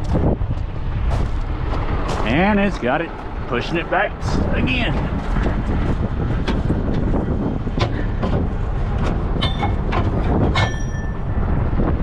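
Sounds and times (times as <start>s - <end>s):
diesel engine rumbling: 0.0s - 12.0s
metal gear knocking and clanking: 6.4s - 11.4s.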